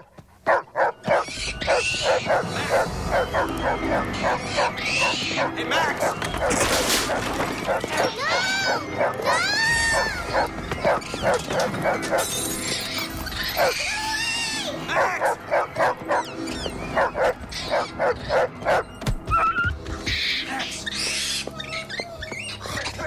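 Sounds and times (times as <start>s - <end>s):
film music: 0.0s - 23.0s
dog barking: 0.5s - 8.1s, 14.9s - 16.3s, 17.0s - 18.9s
animal shrieks and yelps: 1.0s - 23.0s.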